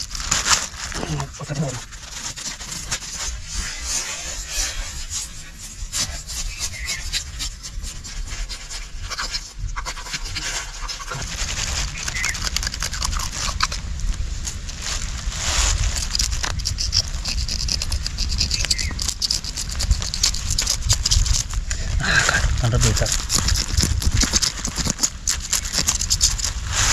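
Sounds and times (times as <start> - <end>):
knife scraping fish scales: 2.6 - 11.3, 15.8 - 21.6, 22.8 - 26.9.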